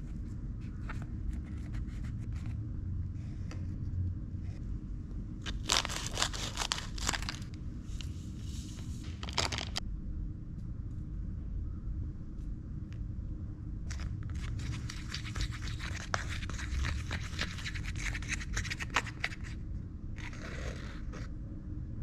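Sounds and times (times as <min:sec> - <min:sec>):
plastic spoon scraping paste: 0:13.9 - 0:19.6.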